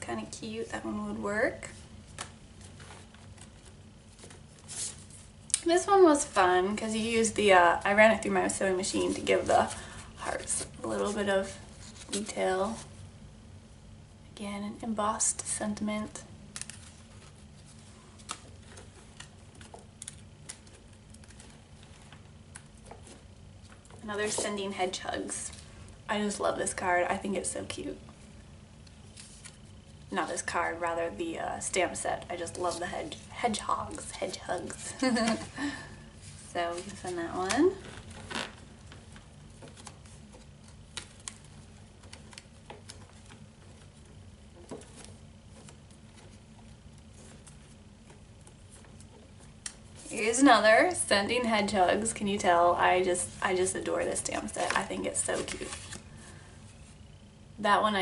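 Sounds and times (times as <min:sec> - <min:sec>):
low room hum: 0:00.0 - 0:58.0
paper cards tapping and rustling: 0:02.1 - 0:05.2, 0:16.5 - 0:24.6, 0:36.2 - 0:50.2, 0:54.2 - 0:56.0.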